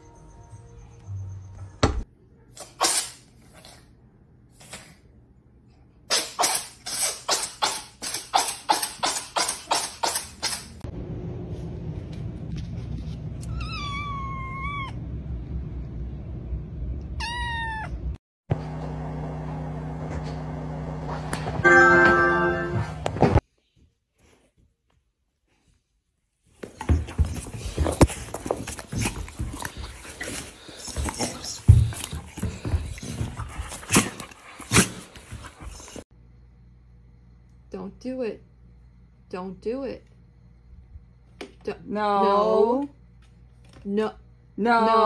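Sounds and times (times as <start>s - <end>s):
cat meowing: 13.4s - 15.0s, 17.2s - 18.0s.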